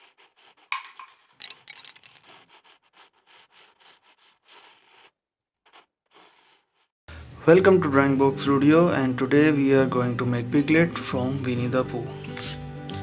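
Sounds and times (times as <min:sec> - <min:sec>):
pencil scratching on paper: 0:00.0 - 0:06.9.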